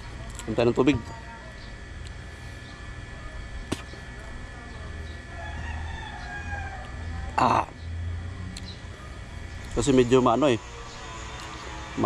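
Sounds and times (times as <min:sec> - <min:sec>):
rooster crowing: 0:05.3 - 0:07.6, 0:10.0 - 0:12.0.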